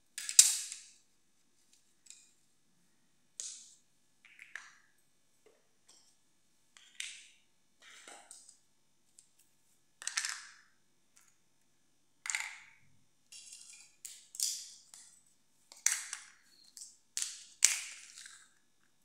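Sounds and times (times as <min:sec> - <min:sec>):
plastic toys clacking on tiled floor: 0:00.2 - 0:01.0, 0:10.0 - 0:11.3, 0:12.2 - 0:15.1, 0:15.7 - 0:18.9.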